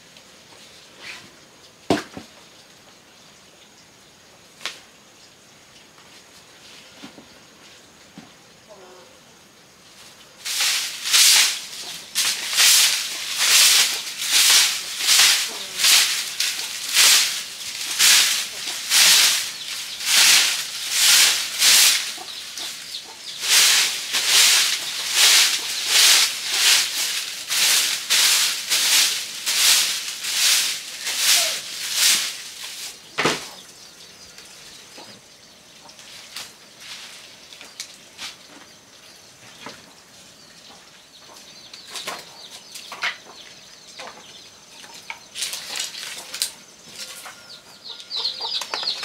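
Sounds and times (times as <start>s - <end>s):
broom sweeping wooden platform: 0.5s - 2.3s, 9.9s - 33.6s, 36.0s - 38.8s, 44.9s - 47.4s
thump: 33.2s - 33.5s.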